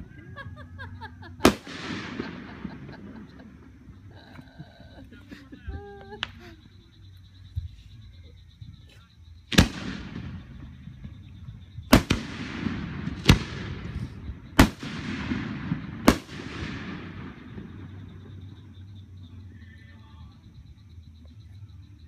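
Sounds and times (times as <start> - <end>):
firework shells booming: 1.4 - 4.1, 9.5 - 18.8.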